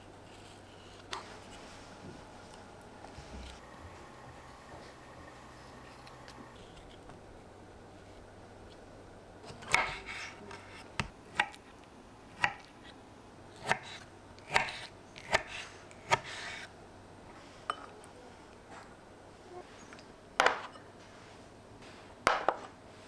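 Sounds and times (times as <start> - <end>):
dishes and utensils clinking: 17.6 - 18.0.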